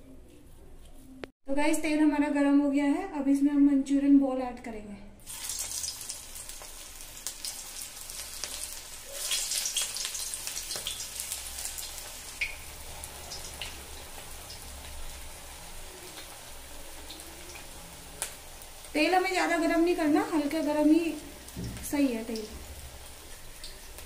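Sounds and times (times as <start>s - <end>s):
food deep-frying in hot oil: 5.2s - 24.0s
crackles of food dropped in oil: 5.3s - 12.7s.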